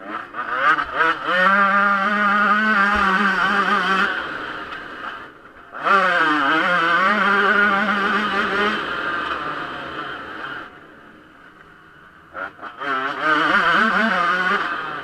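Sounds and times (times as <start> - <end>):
motocross engine revving: 0.0 - 15.0.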